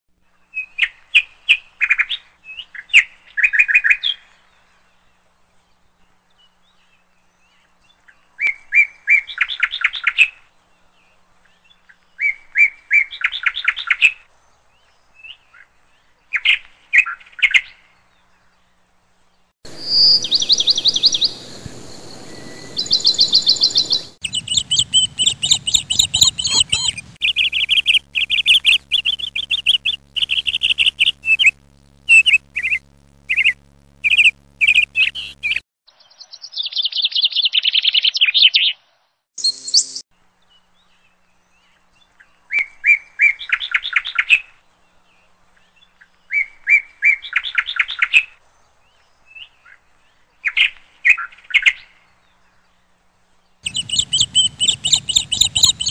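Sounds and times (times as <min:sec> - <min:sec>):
faint low hum: 0:18.2 - 0:35.6, 0:52.8 - 0:55.9
hummingbirds chirping trills: 0:19.7 - 0:35.6, 0:53.7 - 0:55.9.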